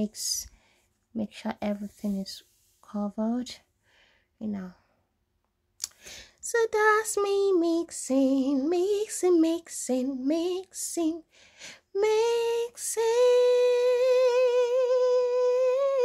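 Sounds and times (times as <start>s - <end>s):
woman singing unaccompanied: 6.4s - 11.3s, 11.9s - 16.0s.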